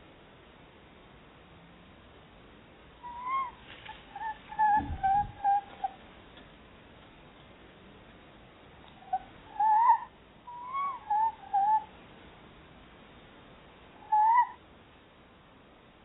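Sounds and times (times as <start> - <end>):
owls calling: 3.0 - 6.0, 9.0 - 11.9, 14.0 - 14.6.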